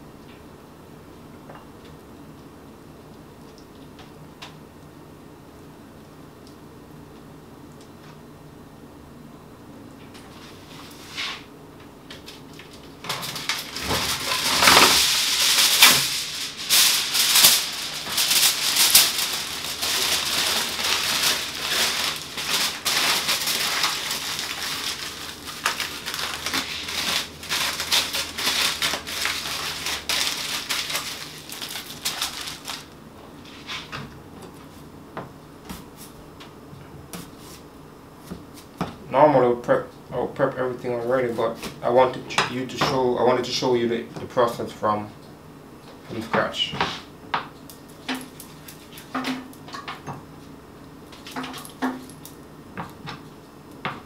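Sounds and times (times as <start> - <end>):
aluminium foil crumpling: 12.2 - 33.7, 47.8 - 49.7, 51.2 - 52.3.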